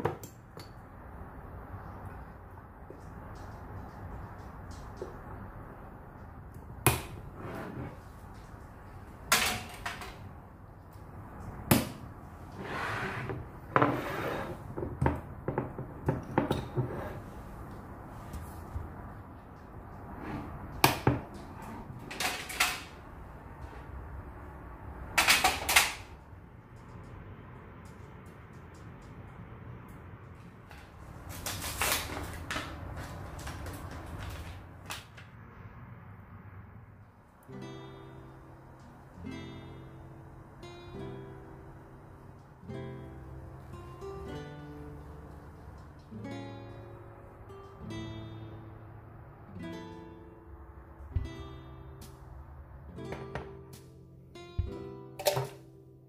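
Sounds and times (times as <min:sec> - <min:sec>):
rustling scrapes of objects: 0:07.2 - 0:08.8, 0:12.4 - 0:14.8, 0:16.7 - 0:18.9, 0:30.8 - 0:34.8.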